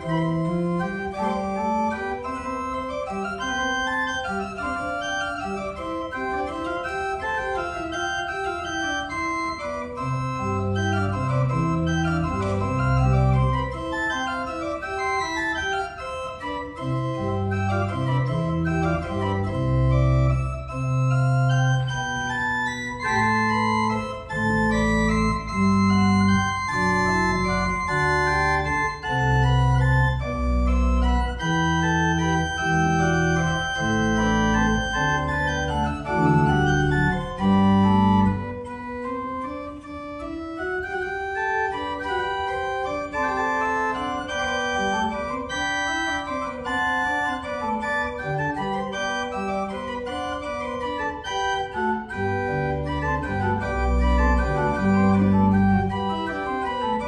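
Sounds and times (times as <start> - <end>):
deep organ pedal bass notes: 0.0 - 57.0
pipe organ playing chords: 0.0 - 57.0.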